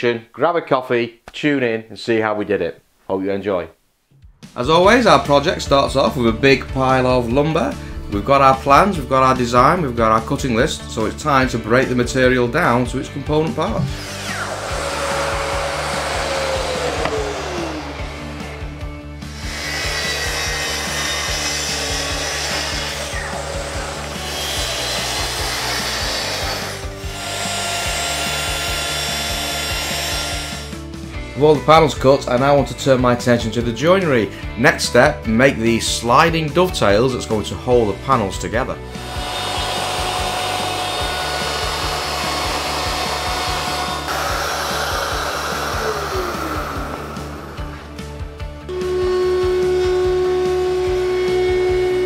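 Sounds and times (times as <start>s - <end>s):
background music with steady beat: 4.0s - 52.0s
track saw cutting wood: 13.3s - 30.9s, 38.9s - 52.0s
router cutting a board: 13.4s - 30.8s, 38.9s - 52.0s.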